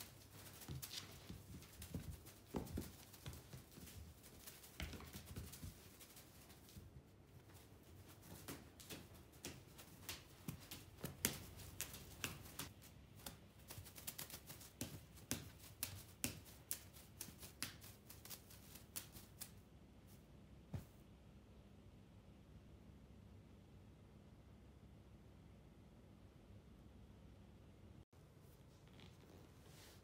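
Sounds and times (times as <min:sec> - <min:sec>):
wand toy tapping on blanket: 0:08.2 - 0:18.4.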